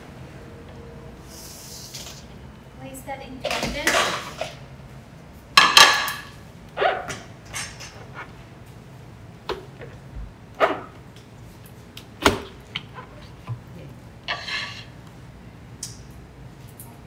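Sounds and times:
kitchen utensils knocking and clacking: 0:03.5 - 0:04.6, 0:05.6 - 0:06.3.

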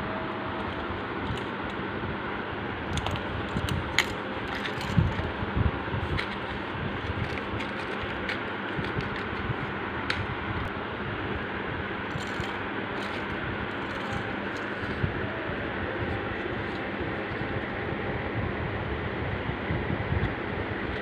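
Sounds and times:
steady fan hum: 0:00.0 - 0:21.0
paper clips clinking: 0:03.0 - 0:05.3, 0:06.1 - 0:10.2, 0:12.1 - 0:15.0.

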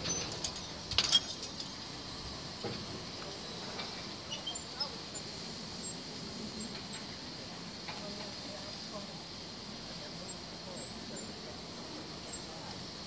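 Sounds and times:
metallic clinks jingling: 0:00.1 - 0:01.8
faint high chirps: 0:03.4 - 0:06.0.

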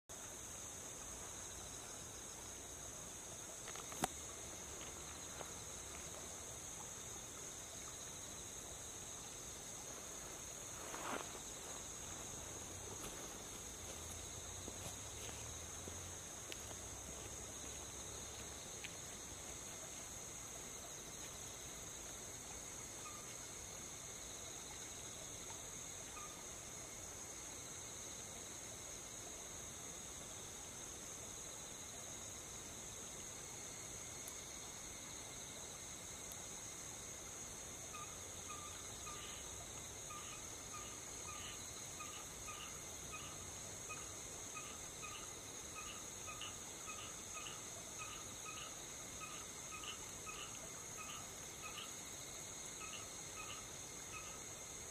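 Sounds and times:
night insects chirping: 0:00.1 - 0:54.9
soft rustle: 0:09.8 - 0:22.5.

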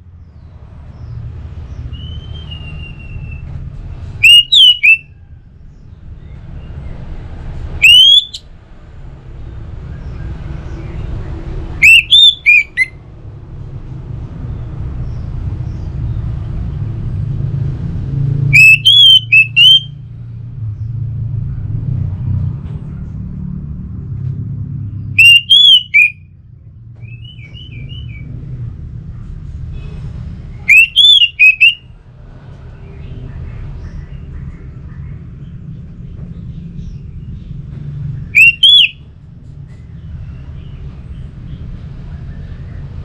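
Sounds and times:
thrush whistling song: 0:01.7 - 0:05.3, 0:07.7 - 0:08.5, 0:10.0 - 0:13.0, 0:18.4 - 0:20.0, 0:25.1 - 0:26.4, 0:27.0 - 0:28.3, 0:29.8 - 0:31.9, 0:38.2 - 0:39.1.

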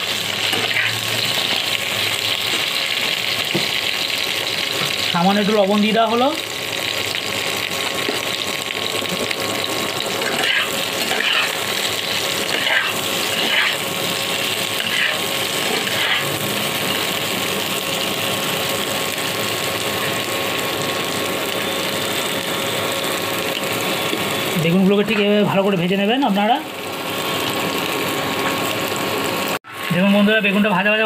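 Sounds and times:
vegetables sizzling in oil: 0:00.0 - 0:31.0
metal spatula scraping pan: 0:10.2 - 0:11.7, 0:12.4 - 0:13.8, 0:14.8 - 0:16.3.

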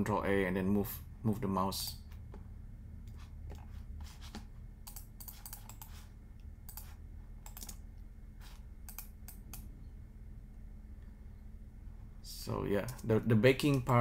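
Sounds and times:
low steady hum: 0:00.0 - 0:14.0
computer keyboard keystrokes: 0:06.7 - 0:07.8, 0:08.9 - 0:09.7.

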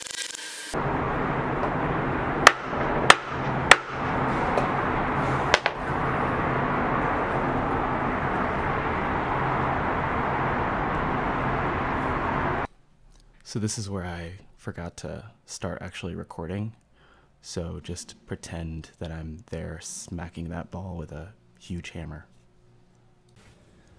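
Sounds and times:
hammer striking foil ball: 0:02.4 - 0:04.7, 0:05.5 - 0:05.9.

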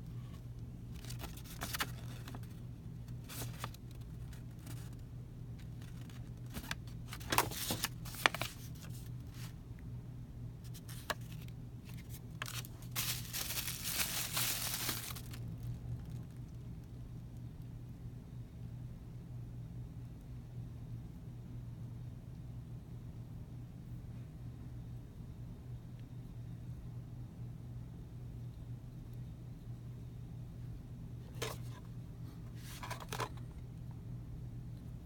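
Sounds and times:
low steady hum: 0:00.0 - 0:35.0
paper and packaging crinkling: 0:00.9 - 0:05.0, 0:05.6 - 0:09.5, 0:10.7 - 0:16.5.

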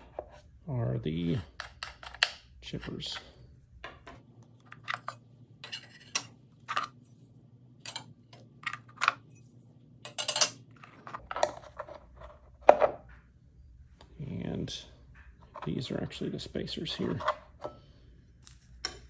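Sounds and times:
metal blades clinking and clattering: 0:04.9 - 0:06.9, 0:07.8 - 0:08.2, 0:10.1 - 0:10.6.

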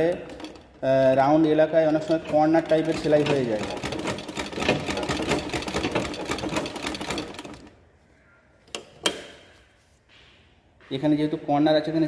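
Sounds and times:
sewing machine clatter: 0:00.0 - 0:07.7.

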